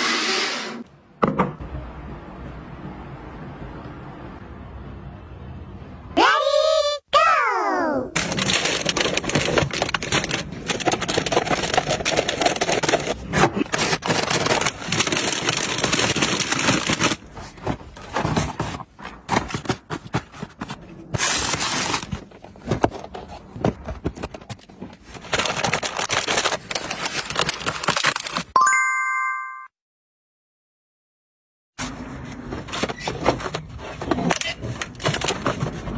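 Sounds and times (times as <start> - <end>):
plastic wrappers crinkling: 8.2 - 23.4, 24.1 - 28.6.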